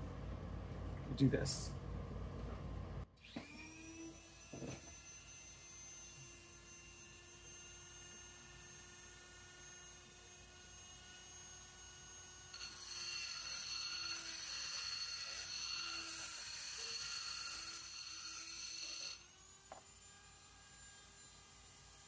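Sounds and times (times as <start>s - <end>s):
rotary tool motor whine: 3.2s - 22.0s
high-pitched grinding of steel: 12.5s - 19.3s.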